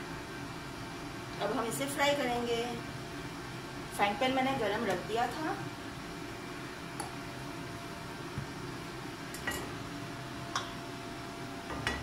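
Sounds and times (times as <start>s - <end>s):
low kitchen hum: 0.0s - 12.0s
light clicks and taps of utensils: 9.3s - 9.7s, 10.5s - 10.8s.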